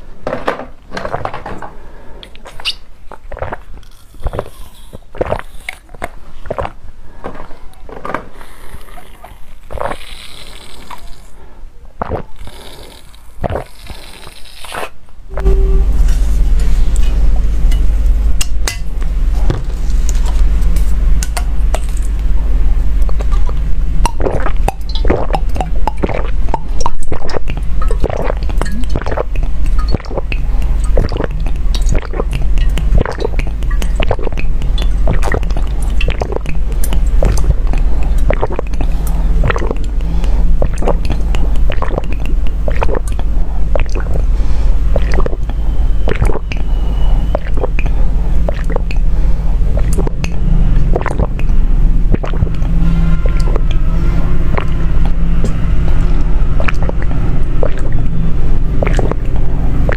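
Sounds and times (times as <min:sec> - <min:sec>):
steady low hum: 0:00.0 - 0:59.9
sucking sips through a straw: 0:02.2 - 0:06.8, 0:08.3 - 0:11.4, 0:12.0 - 0:17.0, 0:43.8 - 0:46.6, 0:47.3 - 0:49.0, 0:56.6 - 0:58.0, 0:58.8 - 0:59.2.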